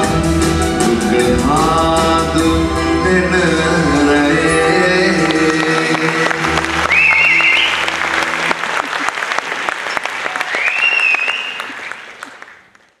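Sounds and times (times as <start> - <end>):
audience applauding: 5.0 - 13.0
high whistle: 6.8 - 7.9, 10.3 - 12.1.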